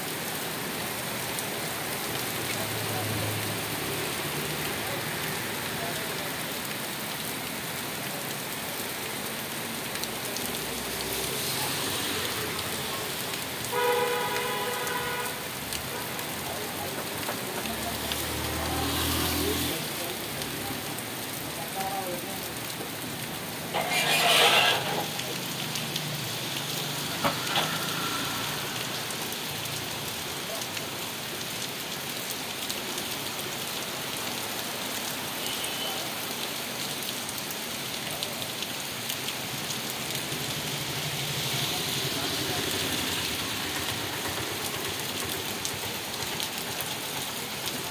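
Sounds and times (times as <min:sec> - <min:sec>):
rain on wet road: 0:00.0 - 0:47.9
vehicle horn: 0:13.7 - 0:15.4, 0:23.7 - 0:25.2.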